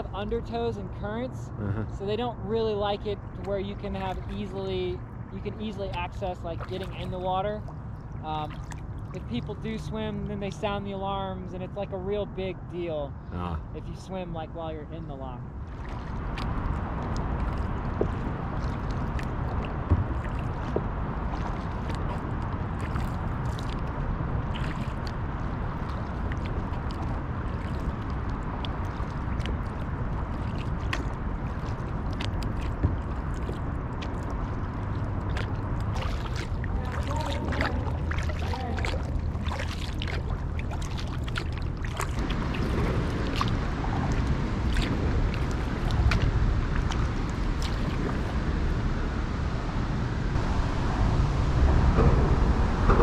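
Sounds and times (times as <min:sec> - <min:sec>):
steady low rumble: 0:00.0 - 0:53.0
water lapping along a hull: 0:00.0 - 0:53.0
wind buffeting microphone: 0:14.4 - 0:53.0
faint drips: 0:15.7 - 0:48.2.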